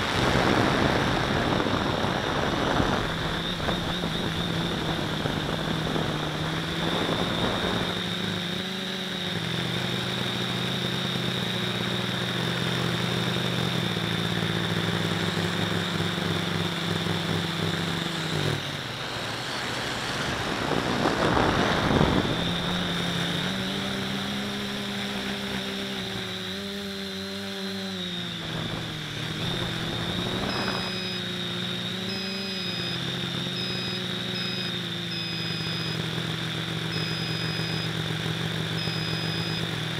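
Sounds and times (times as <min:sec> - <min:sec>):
drone motors buzzing: 0:00.0 - 0:39.9
short high beeps: 0:29.6 - 0:31.4, 0:32.0 - 0:36.0, 0:36.9 - 0:38.0, 0:38.8 - 0:39.7.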